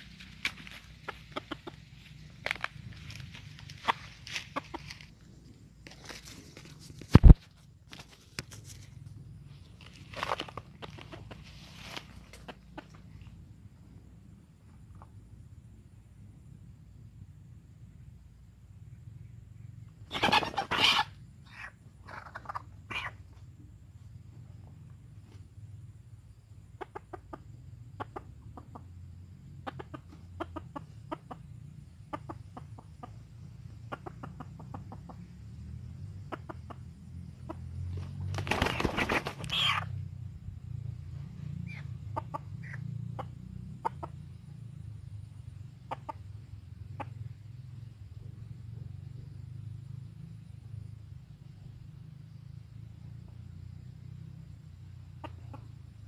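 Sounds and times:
chicken clucking: 0.0 - 5.1, 9.9 - 13.3, 20.1 - 23.4, 26.8 - 28.9, 29.6 - 35.3, 36.2 - 36.8, 38.6 - 39.9, 41.6 - 44.2, 45.8 - 46.3, 55.2 - 55.8.

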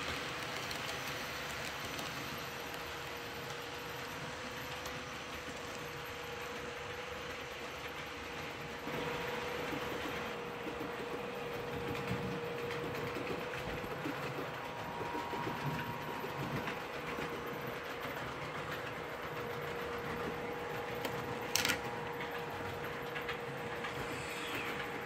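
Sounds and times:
model train wheels rattling on rail: 0.0 - 8.4.

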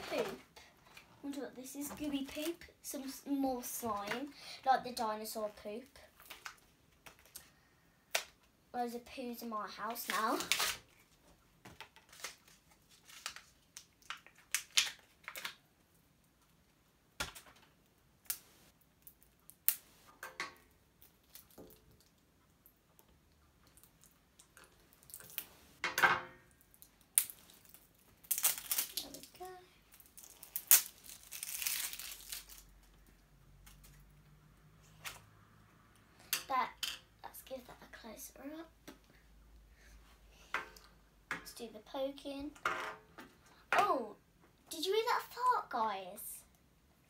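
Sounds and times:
plastic wrapping crinkling and tearing: 10.0 - 11.0, 12.0 - 15.6, 23.7 - 25.6, 26.8 - 33.0.

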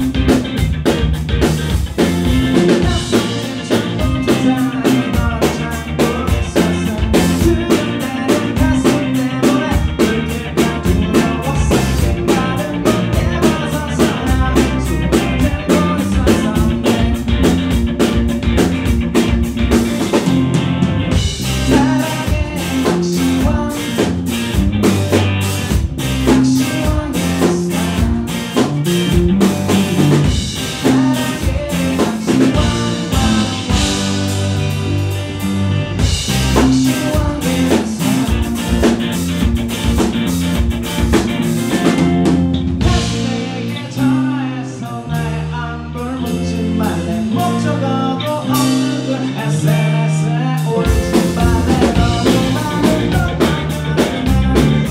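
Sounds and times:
drum kit: 0.0 - 45.6, 48.3 - 54.9
bass guitar: 0.0 - 54.9
electric guitar: 0.0 - 54.9
person singing: 2.3 - 17.8, 21.4 - 24.5, 26.1 - 35.2, 36.3 - 39.1, 41.6 - 54.9.

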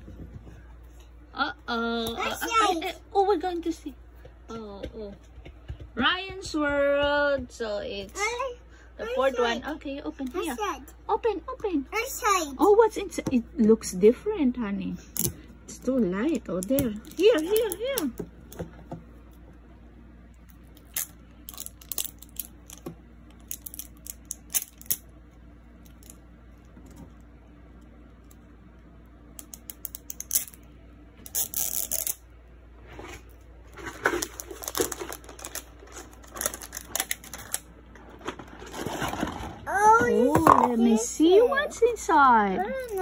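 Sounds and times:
plastic wrapper crinkling: 20.7 - 25.0, 33.7 - 39.7
wrapper rustling: 32.9 - 39.9.

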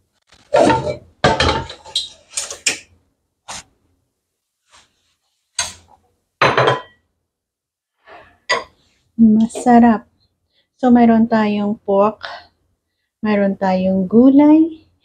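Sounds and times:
ceramic dishes clinking: 6.4 - 7.0.

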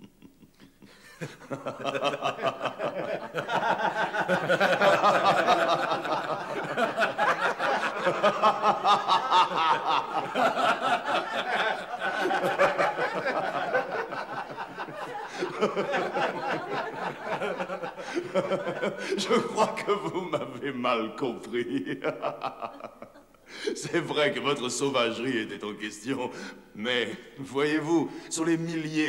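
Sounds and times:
men laughing: 0.0 - 24.0.

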